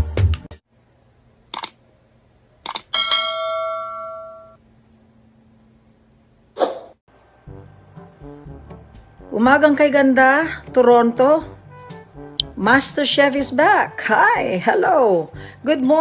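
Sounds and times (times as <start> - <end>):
sharp clicks: 1.5 - 1.8.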